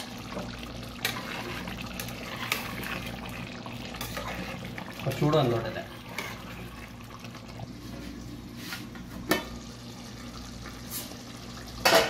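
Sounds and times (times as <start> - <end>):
curry bubbling in a pot: 0.0 - 11.9.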